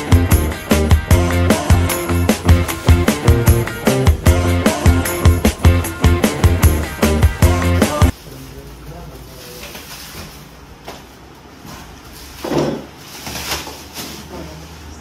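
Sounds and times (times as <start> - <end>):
cardboard and plastic packaging rustling: 8.1 - 15.0.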